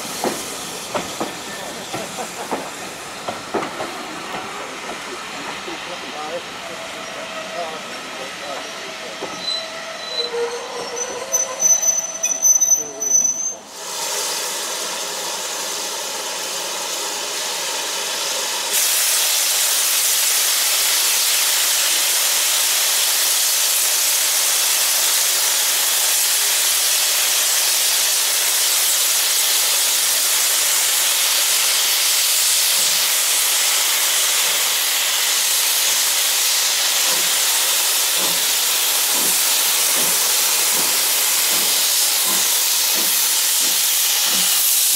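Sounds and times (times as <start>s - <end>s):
steam locomotive hissing: 0.0s - 44.9s
high thin squealing: 6.7s - 13.7s.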